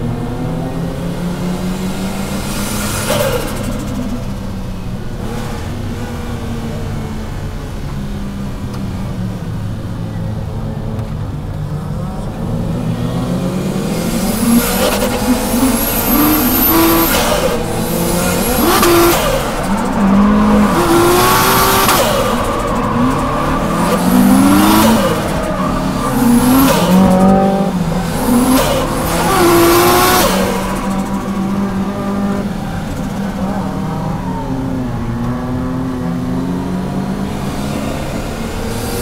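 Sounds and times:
car engine revving: 0:00.0 - 0:39.0
tyre squeal: 0:13.9 - 0:32.4.

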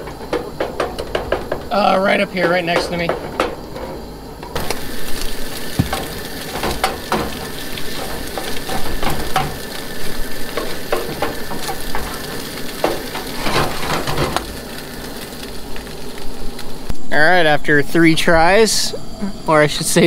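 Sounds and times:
food sizzling in skillet: 0:04.6 - 0:17.5.

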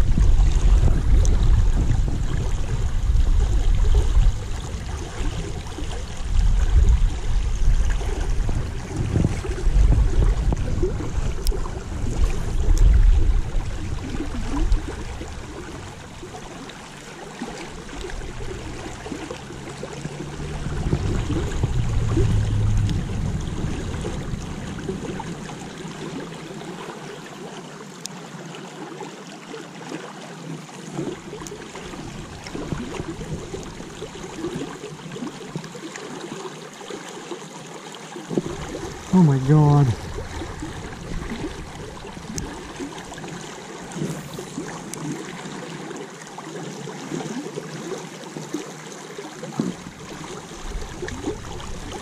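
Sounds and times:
low rumbles: 0:00.0 - 0:17.0, 0:17.8 - 0:26.6, 0:38.3 - 0:44.9
creek water rushing: 0:00.0 - 0:52.0.

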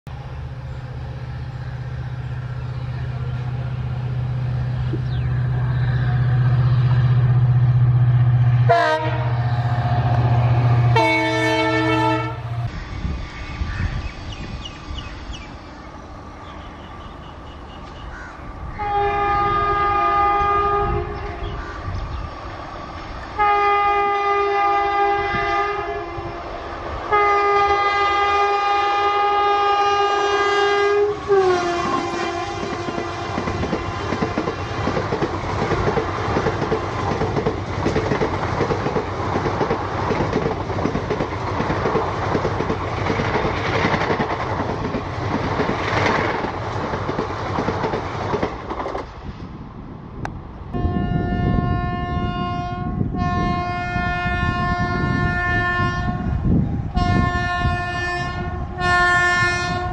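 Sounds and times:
rail noise: 0:00.0 - 0:59.9
diesel locomotive engine running: 0:00.1 - 0:59.9
locomotive horn: 0:08.6 - 0:12.8, 0:18.7 - 0:21.6, 0:23.4 - 0:26.4, 0:27.1 - 0:34.3, 0:50.7 - 0:59.9
multi-tone horn blasts: 0:08.6 - 0:13.1, 0:18.7 - 0:21.6, 0:23.4 - 0:26.4, 0:27.1 - 0:34.2, 0:50.7 - 0:59.9.

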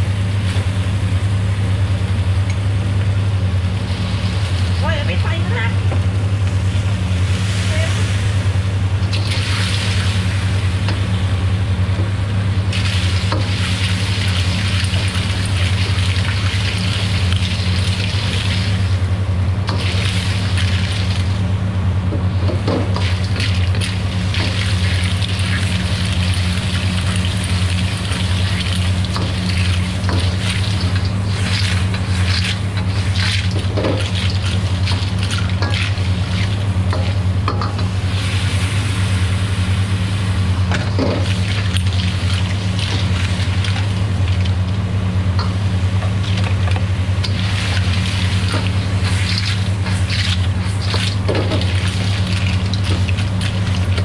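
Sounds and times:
low hum: 0:00.0 - 0:54.0
food sizzling in wok: 0:06.7 - 0:11.2, 0:12.7 - 0:19.1, 0:19.7 - 0:21.4, 0:22.8 - 0:44.6, 0:45.4 - 0:54.0
ladle scraping wok: 0:22.8 - 0:39.3, 0:45.4 - 0:54.0.

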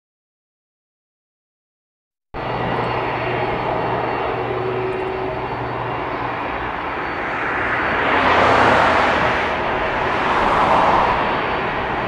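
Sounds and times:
jet engines running: 0:02.4 - 0:12.0.

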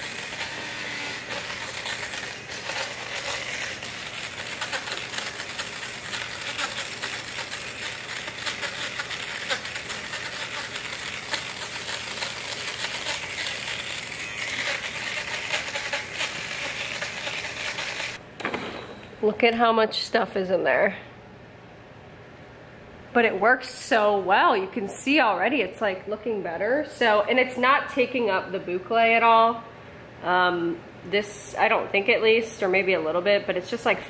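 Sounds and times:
fabric shaver motor hum: 0:00.0 - 0:18.2.

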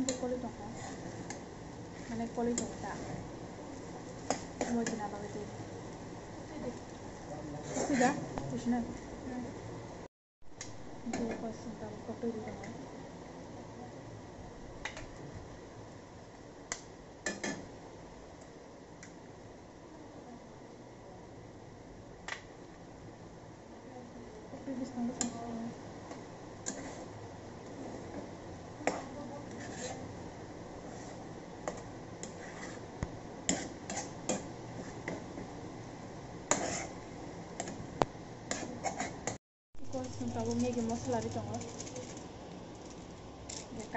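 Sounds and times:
spatula scraping metal pan: 0:26.6 - 0:27.1, 0:28.9 - 0:30.1, 0:32.2 - 0:32.9, 0:33.5 - 0:35.2, 0:36.5 - 0:37.0, 0:38.5 - 0:39.3.

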